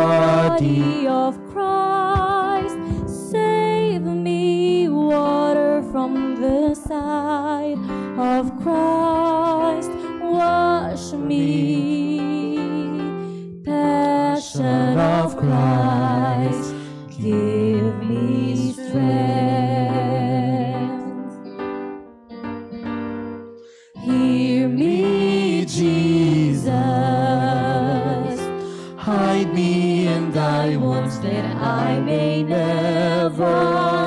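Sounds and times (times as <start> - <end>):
hymn on electronic keyboard: 0.0 - 1.7, 14.0 - 21.7, 23.9 - 34.0.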